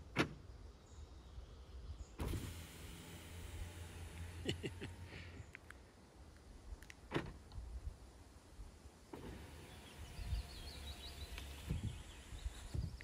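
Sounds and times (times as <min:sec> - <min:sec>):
electric window motor hum: 0:02.2 - 0:05.1, 0:09.1 - 0:12.9
birds chirping: 0:09.1 - 0:13.0.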